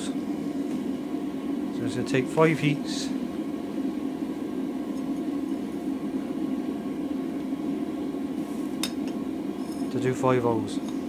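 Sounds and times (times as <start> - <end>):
gas burner rushing: 0.0 - 11.0.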